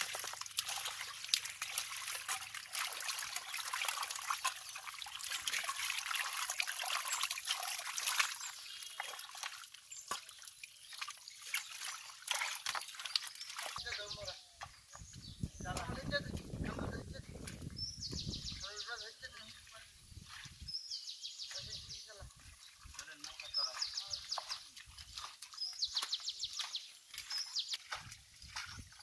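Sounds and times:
small wet clicks and crackles: 0:00.0 - 0:14.0, 0:22.3 - 0:29.0
mud and water squelching: 0:00.0 - 0:29.0.

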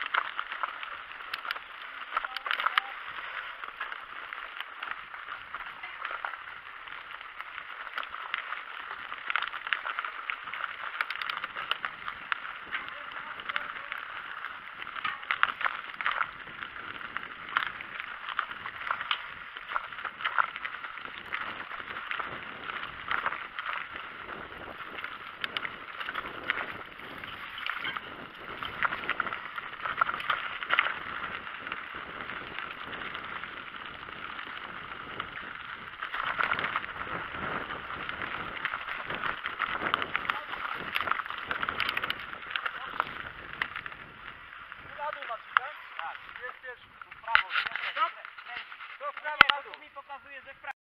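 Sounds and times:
bike rattling and knocking: 0:00.0 - 0:50.0
tyre and trail noise: 0:00.0 - 0:50.8.

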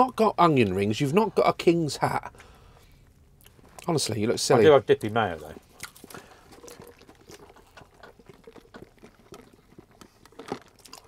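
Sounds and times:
chewing: 0:02.3 - 0:04.0, 0:05.4 - 0:11.0
food wrappers crackling: 0:05.6 - 0:11.0.

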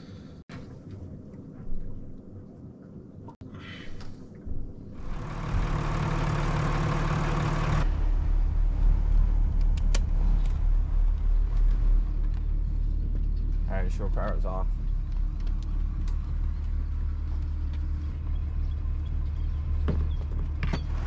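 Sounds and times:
diesel engine idling: 0:05.0 - 0:21.0.

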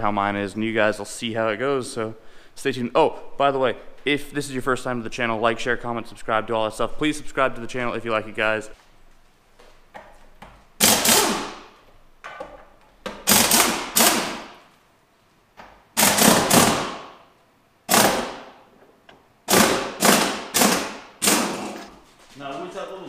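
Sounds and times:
impact wrench hammering: 0:10.8 - 0:14.6, 0:16.0 - 0:17.2, 0:17.9 - 0:22.0.

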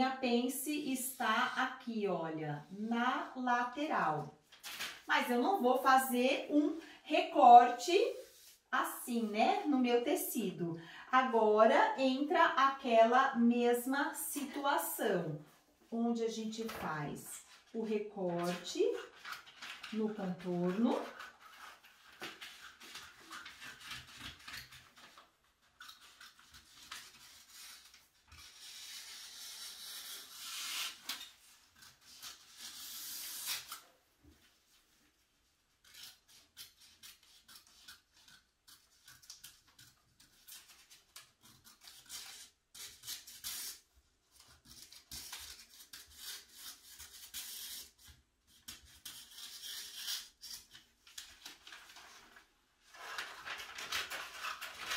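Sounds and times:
scissors cutting paper: 0:18.3 - 0:33.8, 0:35.8 - 0:51.6
paper rustling and sliding: 0:18.4 - 0:35.2, 0:51.0 - 0:54.9.

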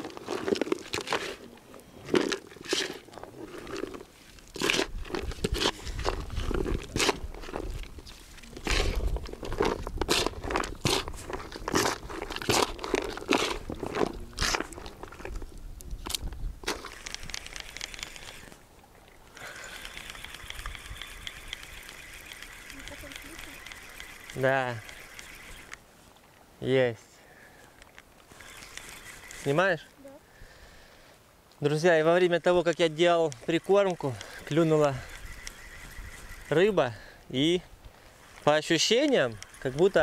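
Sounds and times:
hands mixing wet bait: 0:00.0 - 0:15.4.

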